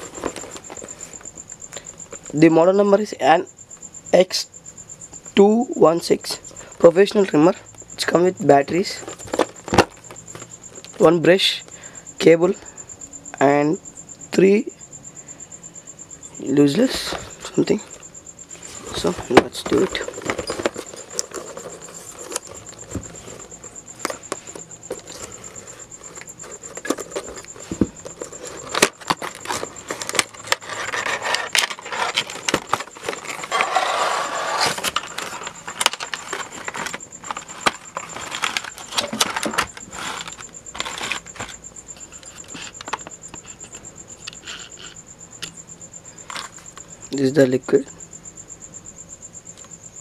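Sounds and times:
cardboard and plastic crinkling: 0.0 - 1.3, 8.6 - 11.0, 16.9 - 41.6.

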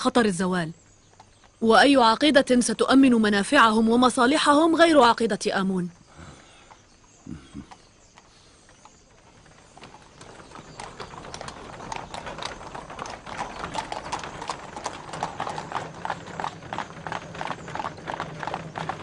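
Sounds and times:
horse hooves clip-clopping on pavement: 0.9 - 1.6, 6.7 - 19.0.

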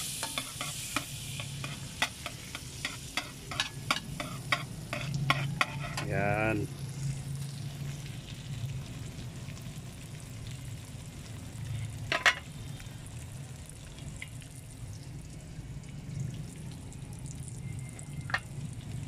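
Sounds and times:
butter and oil sizzling: 0.0 - 19.0
metal ladle clinking on pan: 0.2 - 6.1, 12.1 - 12.4.

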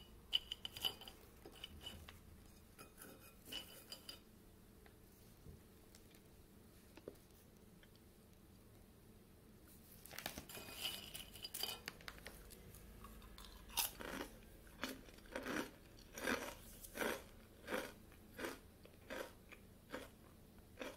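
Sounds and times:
crunching and chewing biscuits: 10.0 - 20.9.

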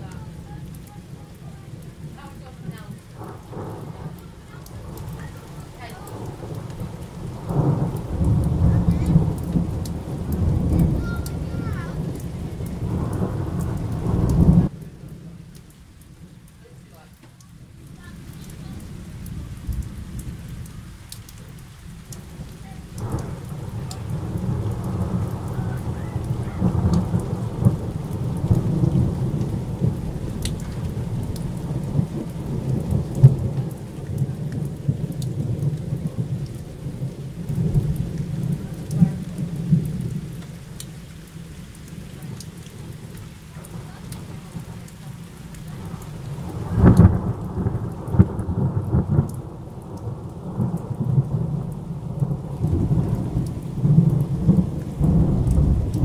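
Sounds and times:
rolling thunder: 0.0 - 15.5, 17.5 - 56.0
rain falling: 0.0 - 56.0
sharp thunder clap: 1.8 - 15.4, 22.1 - 40.4, 45.7 - 56.0.

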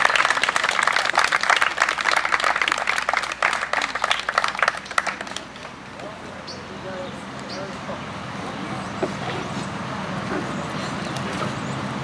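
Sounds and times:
crowd applauding: 0.0 - 5.8.

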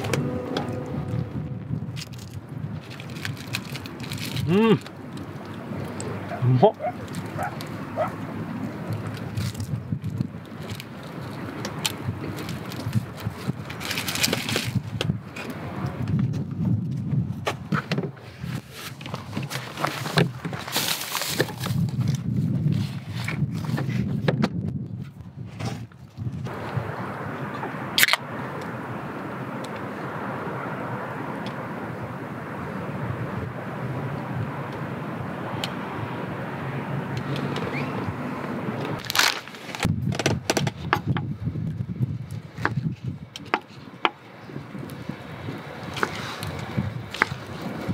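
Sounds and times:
low outdoor rumble: 0.0 - 22.6
plastic bags rustling: 2.0 - 4.6.

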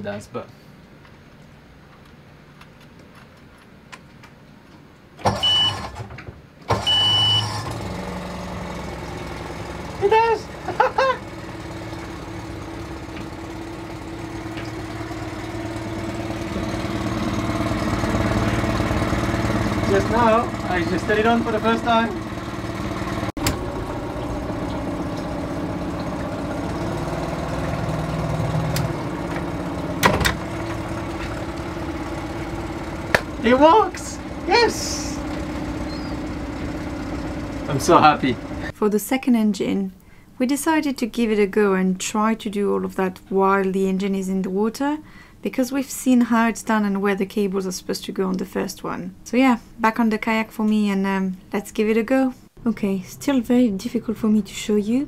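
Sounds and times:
outboard motor cranking and running: 5.2 - 38.8.

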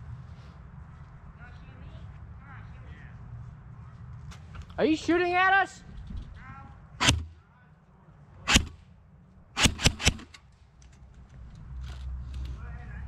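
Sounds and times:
airsoft gun shots: 7.0 - 7.4, 8.5 - 8.8, 9.6 - 10.4.

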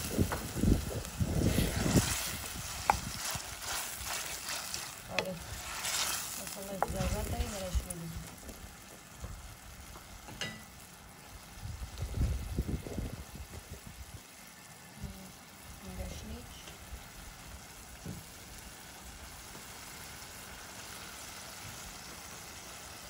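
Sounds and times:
food sizzling in oil: 0.0 - 23.0
wooden spoon scraping metal pan: 1.4 - 8.0.

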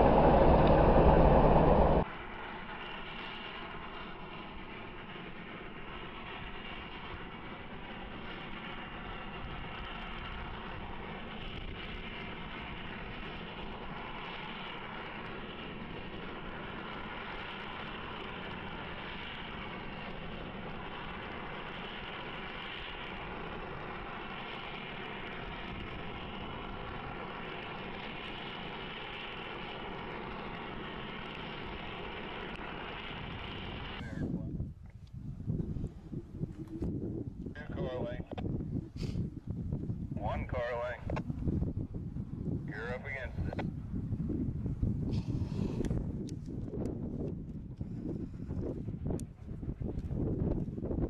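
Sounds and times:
heavy machine engine drone: 0.0 - 34.5.

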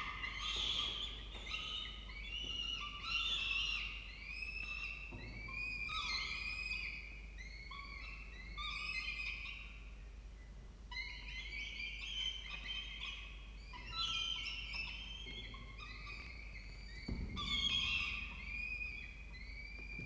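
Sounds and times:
falcon chicks begging calls: 0.0 - 5.0.

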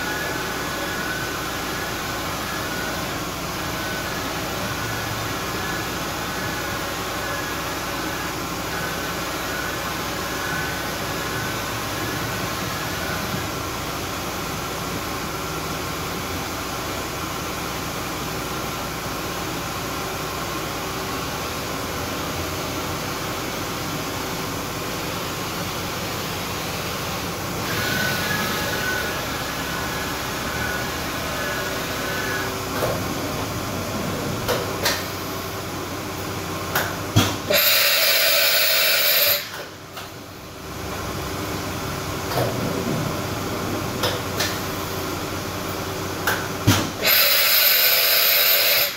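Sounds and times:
machine table whine: 0.0 - 14.3, 21.1 - 48.9
machine mechanical hum: 0.0 - 48.9
loud air hiss: 37.5 - 39.6, 47.0 - 48.9.

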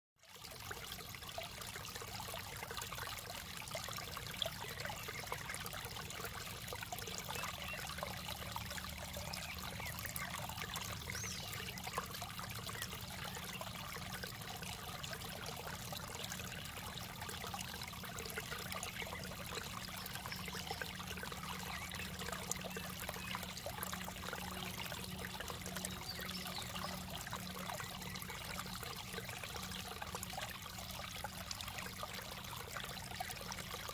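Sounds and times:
water trickling over rocks: 0.2 - 33.9.

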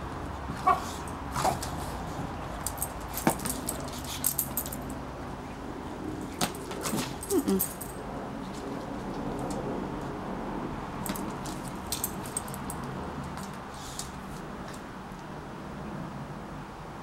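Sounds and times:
collar jingling: 2.4 - 5.0, 6.2 - 8.0, 11.0 - 13.5
dog whining: 7.2 - 7.8.

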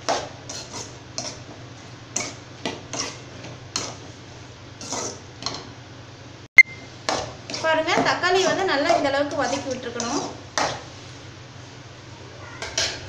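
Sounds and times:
spatula scraping a metal pan: 0.1 - 1.5, 2.1 - 4.1, 4.8 - 5.2, 7.1 - 11.0.

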